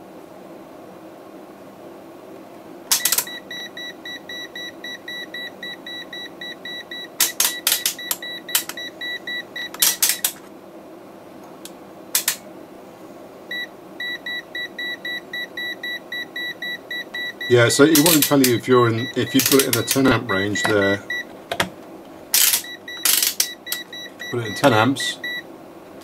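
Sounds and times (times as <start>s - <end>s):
range dial clicks: 2.9s - 3.4s, 7.2s - 8.9s, 9.6s - 10.4s, 19.3s - 21.7s
multimeter buzzer beeping rapidly: 2.9s - 10.3s, 13.5s - 21.3s, 22.4s - 25.4s.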